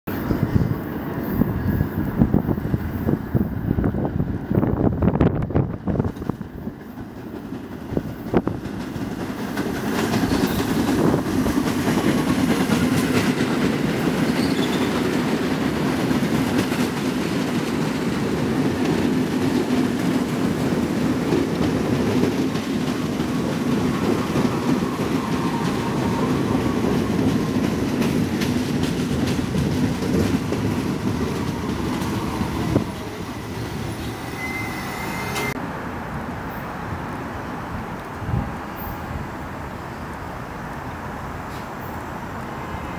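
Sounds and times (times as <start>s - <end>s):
subway train wheels rumbling: 0.1s - 42.9s
clacks over rail joints: 5.9s - 33.2s
faint train whine: 21.1s - 42.9s.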